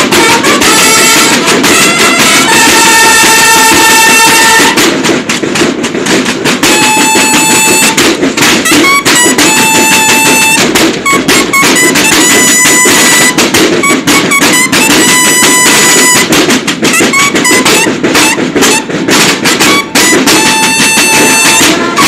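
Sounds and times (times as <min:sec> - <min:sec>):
bugles holding long notes: 0:00.0 - 0:22.0
snare drums beating a march: 0:00.0 - 0:22.0.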